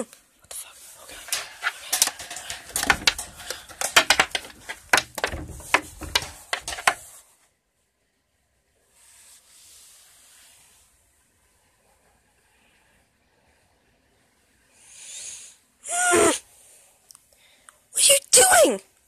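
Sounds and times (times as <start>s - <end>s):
faint hiss: 7.0s - 17.9s.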